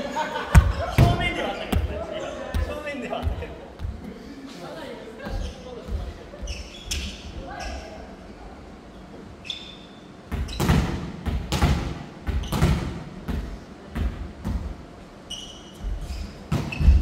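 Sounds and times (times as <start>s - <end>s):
shoe squeaks on wooden floor: 6.4s - 8.0s, 9.4s - 10.7s, 15.3s - 17.0s.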